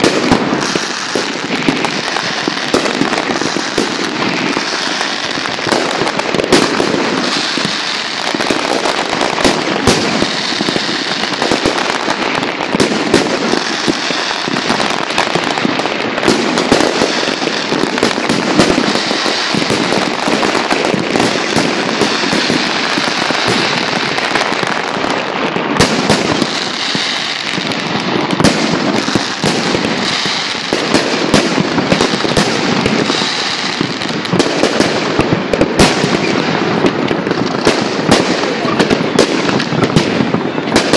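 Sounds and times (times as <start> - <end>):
fireworks bursting: 0.0 - 40.9.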